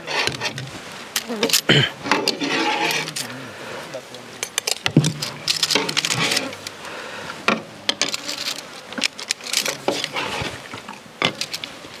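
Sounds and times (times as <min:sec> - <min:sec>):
insects buzzing: 0:00.0 - 0:12.0
metal ladles clinking on bowls: 0:04.4 - 0:06.7.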